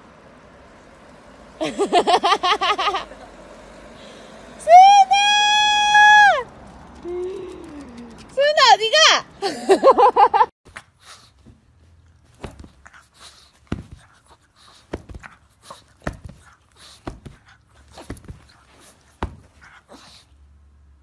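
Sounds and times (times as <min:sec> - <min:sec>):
dog breathing in noisy huffs: 0:10.8 - 0:11.8, 0:12.5 - 0:20.7.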